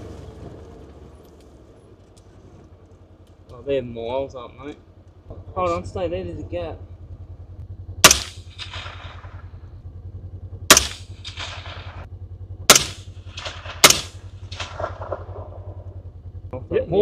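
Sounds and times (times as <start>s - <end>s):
engine idling: 0.0s - 17.0s
rifle shots with echo: 8.0s - 15.9s.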